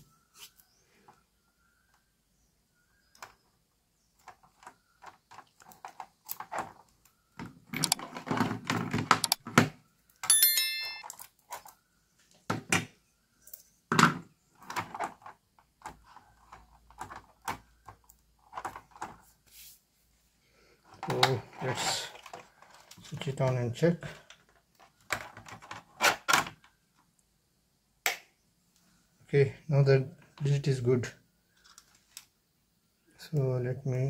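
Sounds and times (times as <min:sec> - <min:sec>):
high bell-like ding: 0:10.3 - 0:11.1.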